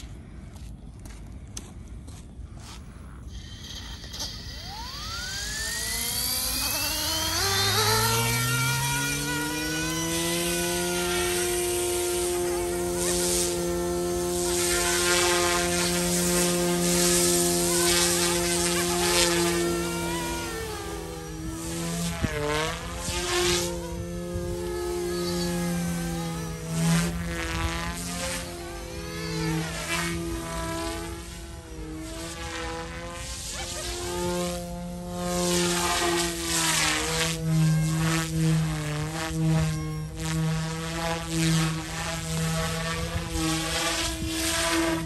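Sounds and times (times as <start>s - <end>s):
rc helicopter rotors whining: 2.6s - 45.0s.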